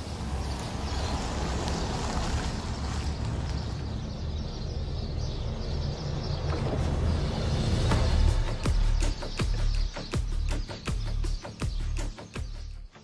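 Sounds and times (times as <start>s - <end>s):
car engine and tyre rumble: 0.0s - 8.3s.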